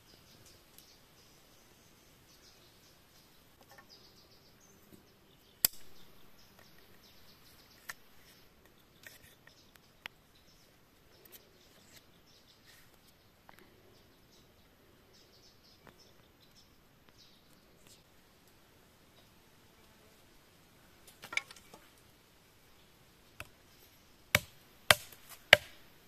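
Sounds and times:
faint bird or insect chirps: 0:00.0 - 0:20.0, 0:20.9 - 0:24.3
bamboo cracking: 0:05.6 - 0:07.0, 0:24.4 - 0:25.8
knife clicking on bamboo: 0:05.6 - 0:07.0, 0:24.4 - 0:25.8.

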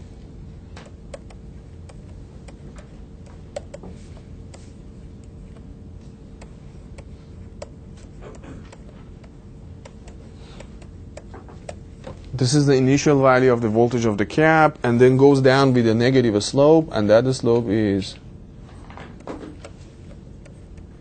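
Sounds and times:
steady hum: 0:00.0 - 0:21.0
stylus tapping on tablet screen: 0:00.8 - 0:04.0.

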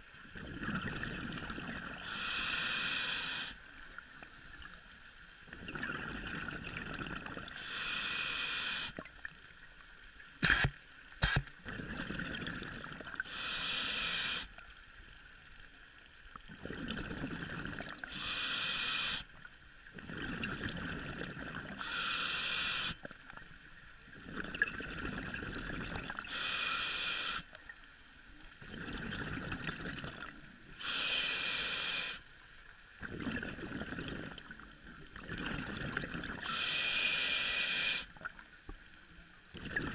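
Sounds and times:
bubbling rumble: 0:00.2 - 0:02.0, 0:05.5 - 0:07.5, 0:11.6 - 0:13.2, 0:16.5 - 0:18.0, 0:19.9 - 0:21.8, 0:24.1 - 0:26.2, 0:28.6 - 0:30.5, 0:33.0 - 0:36.4, 0:39.5 - 0:39.9
diver breathing through regulator: 0:02.0 - 0:03.6, 0:07.5 - 0:09.0, 0:10.4 - 0:11.4, 0:13.2 - 0:14.5, 0:18.0 - 0:19.3, 0:21.8 - 0:23.0, 0:26.2 - 0:27.5, 0:30.7 - 0:32.2, 0:36.4 - 0:38.1.

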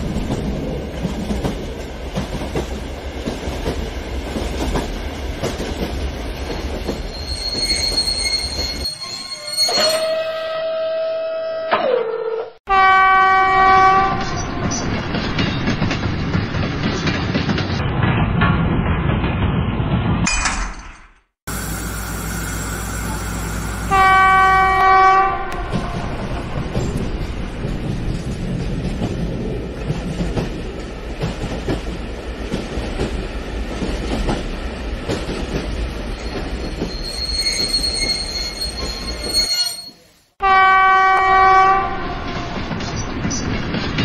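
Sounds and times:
train wheels clacking on rails: 0:00.0 - 0:08.8, 0:25.6 - 0:39.4, 0:42.1 - 0:44.0
high wheel squeal: 0:07.1 - 0:10.9, 0:36.1 - 0:40.2
train horn: 0:09.8 - 0:14.7, 0:23.8 - 0:26.3, 0:40.4 - 0:42.6.

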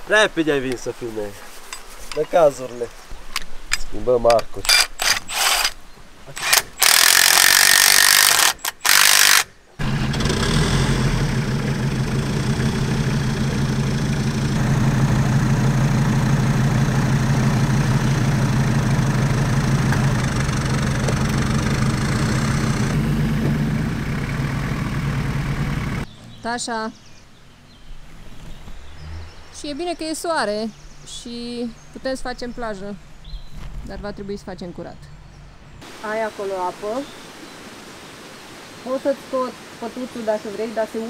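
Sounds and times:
loud rasping noise bursts: 0:04.7 - 0:05.8, 0:06.4 - 0:15.0
off-road engine idling: 0:09.0 - 0:27.9.

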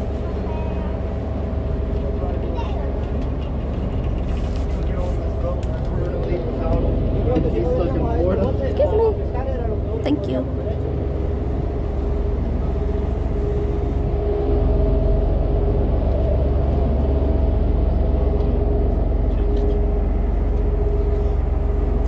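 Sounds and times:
boat engines rumbling: 0:00.0 - 0:22.0.

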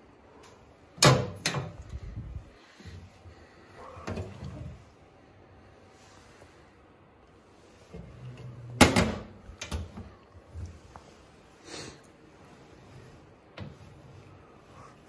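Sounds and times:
metal cabinet door banging shut: 0:01.0 - 0:01.8, 0:08.8 - 0:09.4.

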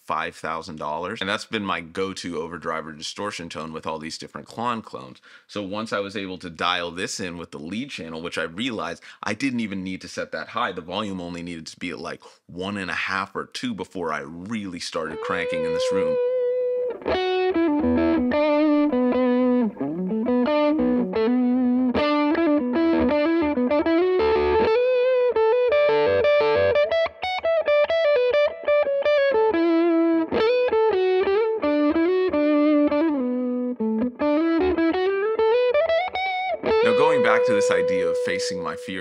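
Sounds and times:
overdriven electric guitar lead: 0:15.3 - 0:39.0.

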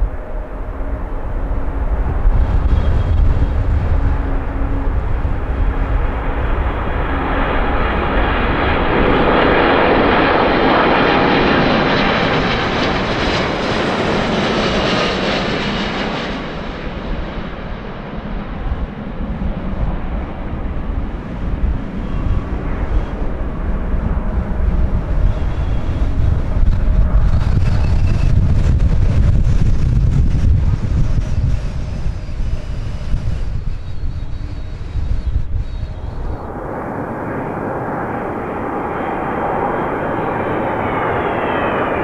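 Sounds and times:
airliner jet engine noise: 0:00.0 - 0:42.0.

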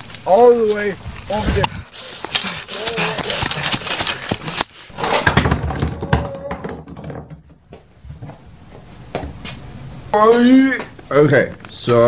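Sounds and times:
tall grass rustling: 0:00.0 - 0:05.0
pvc pipe clattering on workbench: 0:05.0 - 0:07.6.

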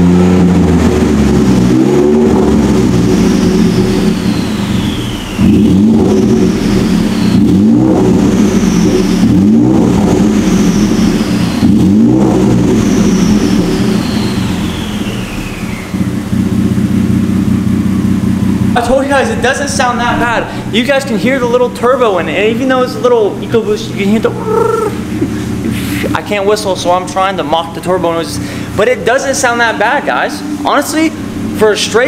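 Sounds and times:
engine throttle blips: 0:00.0 - 0:32.0
truck engine idling: 0:00.0 - 0:32.0
turbo whistle falling in pitch: 0:03.0 - 0:09.4, 0:10.3 - 0:16.0.

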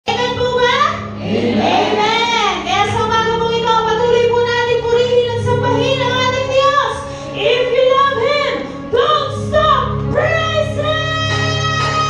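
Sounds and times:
worship band playing: 0:00.1 - 0:12.0
singers holding long notes: 0:01.1 - 0:02.7.

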